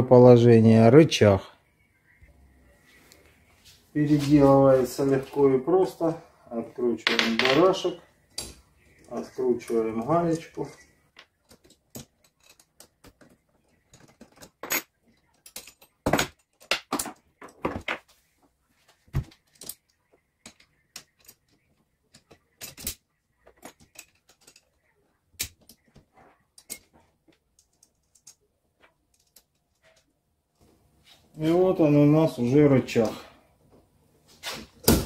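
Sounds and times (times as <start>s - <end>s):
metal tool clicking and clinking: 13.9s - 16.8s.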